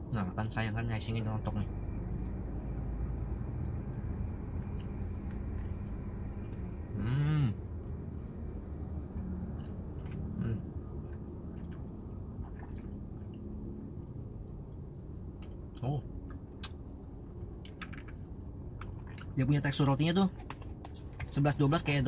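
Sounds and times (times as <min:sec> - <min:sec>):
low hum inside car: 0:00.0 - 0:22.0
man chewing bread: 0:04.6 - 0:06.7, 0:09.4 - 0:13.5, 0:18.8 - 0:19.3
man humming mmm: 0:06.9 - 0:07.6.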